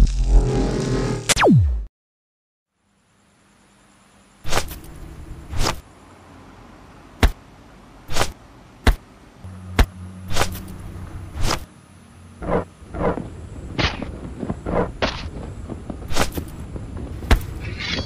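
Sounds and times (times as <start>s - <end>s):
faint low hum and hiss: 2.7s - 14.6s
sharp swishing sound effects: 4.4s - 4.8s, 5.5s - 5.8s, 8.1s - 9.0s, 9.7s - 11.7s.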